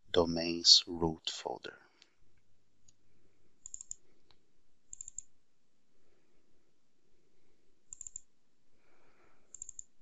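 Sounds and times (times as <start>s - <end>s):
computer mouse clicking: 3.6s - 5.3s, 7.9s - 8.3s, 9.5s - 10.0s.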